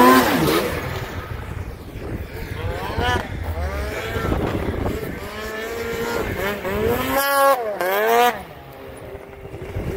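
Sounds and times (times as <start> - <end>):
snowmobile engine revving: 0.0 - 9.9.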